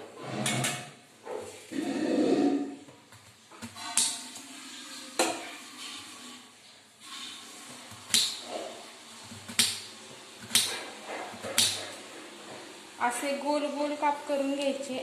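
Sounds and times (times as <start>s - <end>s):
knife slicing vegetable: 10.4s - 12.0s.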